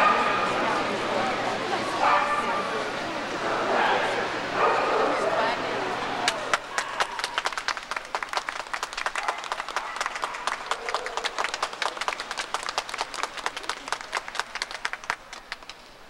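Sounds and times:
crowd applauding: 0:05.4 - 0:16.0.

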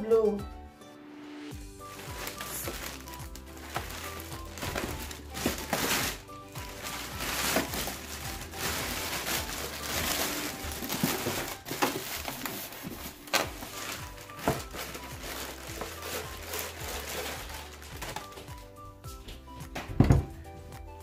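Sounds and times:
background music: 0:00.0 - 0:21.0
plastic bag crinkling: 0:01.8 - 0:18.7.

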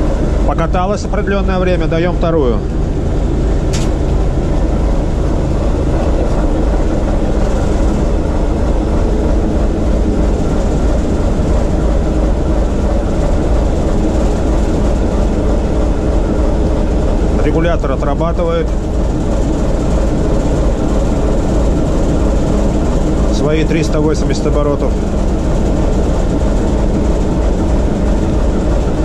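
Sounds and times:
locomotive diesel engine running: 0:00.0 - 0:29.0.

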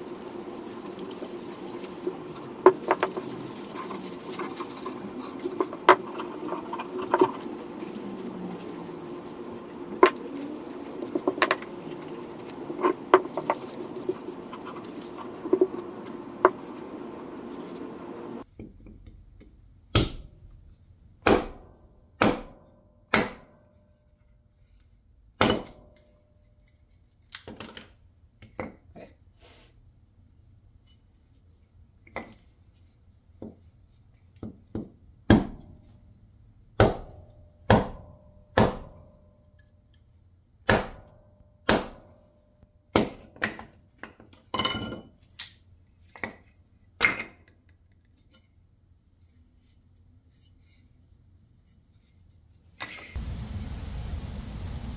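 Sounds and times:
hatchet chopping wood: 0:19.9 - 0:20.3, 0:21.2 - 0:23.6, 0:25.4 - 0:25.8, 0:35.3 - 0:35.6, 0:36.8 - 0:39.0, 0:40.7 - 0:42.1, 0:42.9 - 0:43.6.

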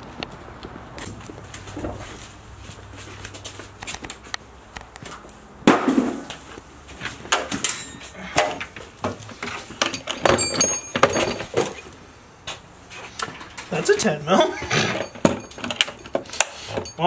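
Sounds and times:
metal tools clattering in drawer: 0:07.5 - 0:08.7, 0:09.4 - 0:11.8, 0:13.0 - 0:17.0.

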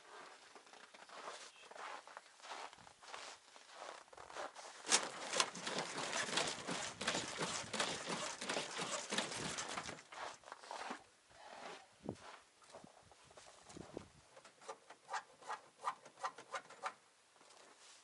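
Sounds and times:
clothing rustling: 0:00.0 - 0:11.0
boots crunching on frozen snow: 0:01.1 - 0:05.2.

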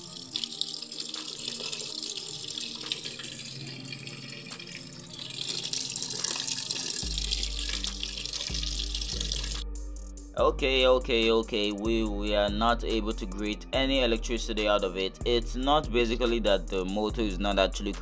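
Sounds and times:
water pouring and splashing: 0:00.0 - 0:09.6.

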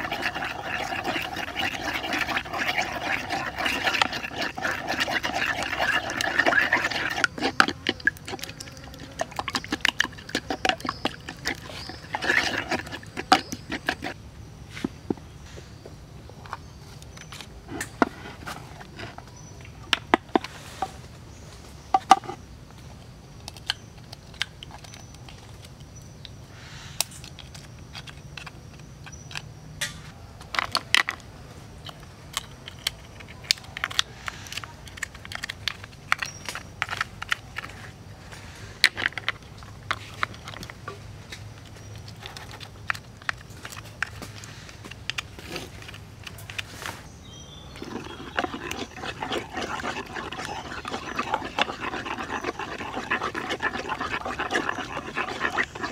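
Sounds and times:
spoon scraping wooden bowl: 0:00.0 - 0:15.0, 0:17.2 - 0:19.5, 0:45.5 - 0:55.9
crab shells clicking on wood: 0:31.9 - 0:37.7.

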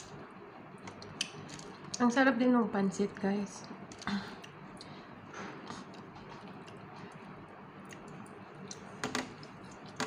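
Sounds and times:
soft chewing: 0:03.6 - 0:10.0
lip smacks: 0:05.6 - 0:10.0.

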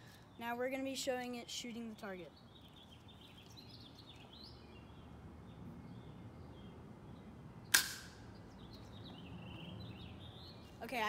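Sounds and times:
airsoft shotgun shot snap: 0:07.7 - 0:08.2.

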